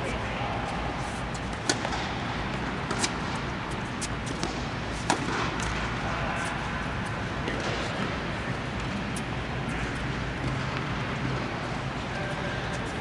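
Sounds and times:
tennis balls struck by racquets: 0:01.4 - 0:11.7.

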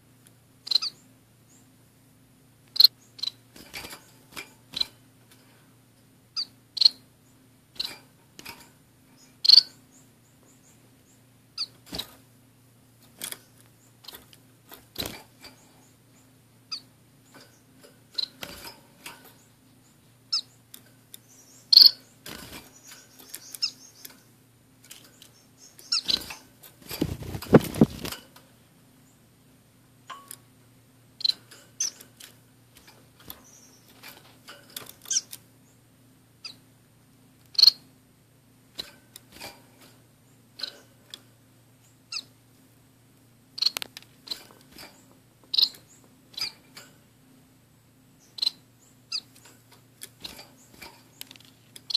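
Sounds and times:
faint steady hum: 0:00.0 - 0:51.9
finches chirping: 0:00.6 - 0:01.7, 0:02.7 - 0:05.0, 0:06.3 - 0:08.1, 0:09.1 - 0:12.1, 0:15.0 - 0:24.4, 0:25.0 - 0:28.1, 0:31.2 - 0:32.0, 0:32.8 - 0:34.1, 0:34.9 - 0:35.8, 0:36.4 - 0:36.7, 0:37.5 - 0:37.9, 0:41.8 - 0:42.4, 0:43.5 - 0:46.8, 0:48.2 - 0:49.5, 0:50.1 - 0:51.9.

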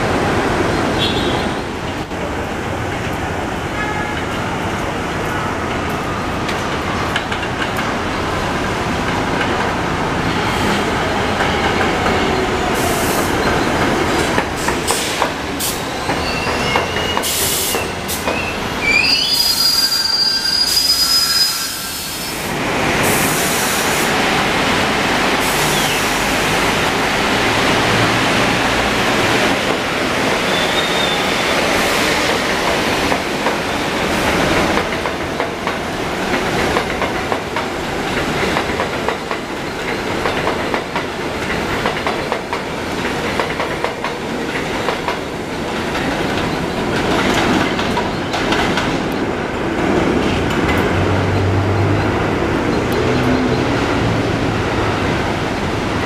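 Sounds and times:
train wheel and rail rumble: 0:00.0 - 0:56.0
high-pitched wheel squeals: 0:16.1 - 0:22.1.

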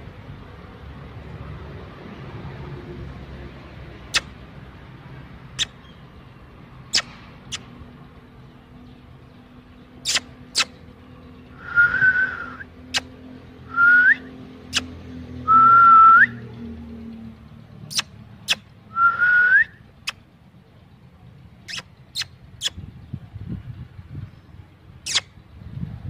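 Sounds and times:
person whistling: 0:11.6 - 0:12.6, 0:18.9 - 0:19.8.

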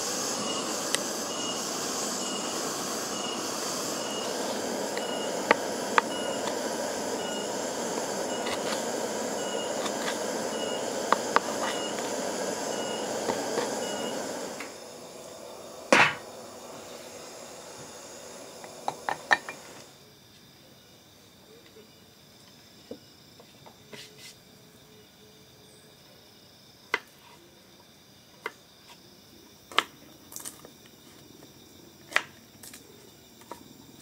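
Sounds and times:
steady hiss: 0:00.0 - 0:24.8
faint high chirp: 0:09.4 - 0:09.9, 0:13.8 - 0:14.3
knife chopping on wooden board: 0:16.0 - 0:16.2.

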